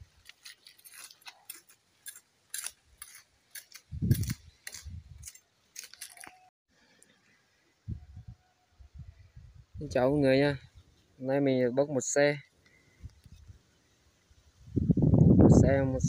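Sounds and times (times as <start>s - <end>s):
footsteps on twigs and leaves: 0.0s - 6.5s.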